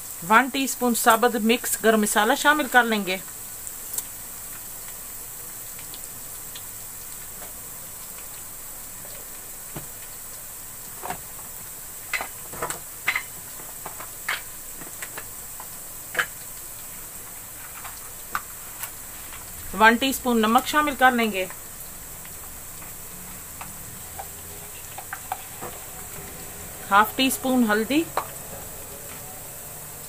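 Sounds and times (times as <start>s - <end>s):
frying in hot oil sizzle: 0.0s - 30.0s
sharp pops and crackles: 3.2s - 5.1s, 9.2s - 19.6s, 21.4s - 26.2s.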